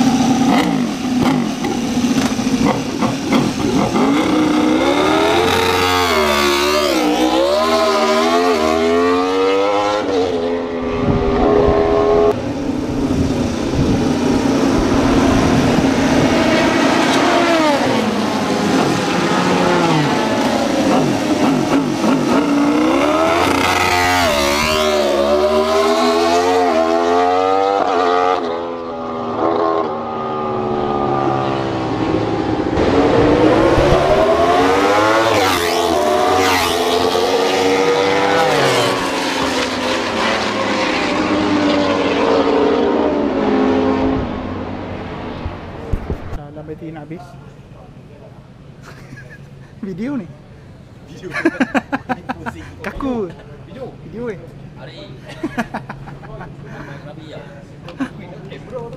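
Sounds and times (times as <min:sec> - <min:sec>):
racing motorcycle engines revving: 0:00.0 - 0:46.0.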